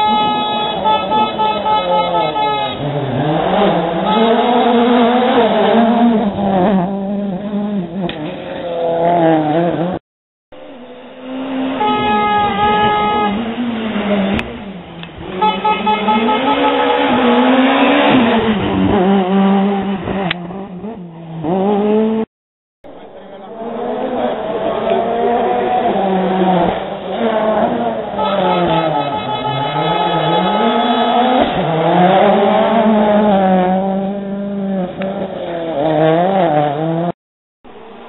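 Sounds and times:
horn sounding: 0.0 - 5.6, 10.8 - 14.4, 15.2 - 19.8, 28.0 - 32.5
rally cars revving past: 2.7 - 10.0, 10.9 - 22.3, 23.5 - 28.9, 29.5 - 37.1.

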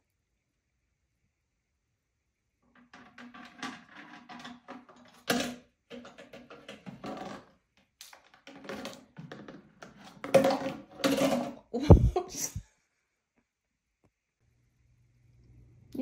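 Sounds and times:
plastic dishes knocking and scraping: 2.7 - 12.1.

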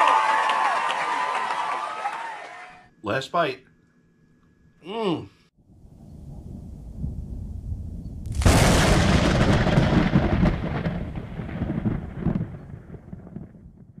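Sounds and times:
low rumble: 5.7 - 11.5
loud rolling crash: 8.3 - 13.6.

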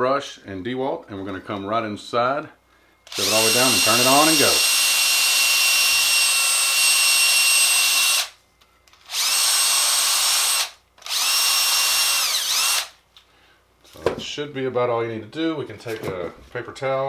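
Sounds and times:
cordless drill whining: 3.1 - 13.0.

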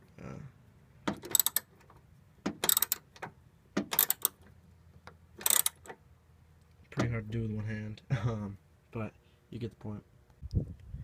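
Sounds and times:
ratchet wrench clicking: 1.2 - 1.7, 2.6 - 3.1, 3.9 - 4.4, 5.4 - 5.9.

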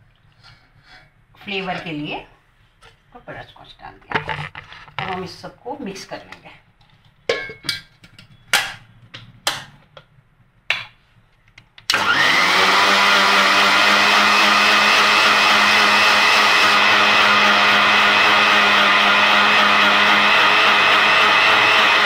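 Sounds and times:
mixer grinder motor whining: 11.9 - 22.0.

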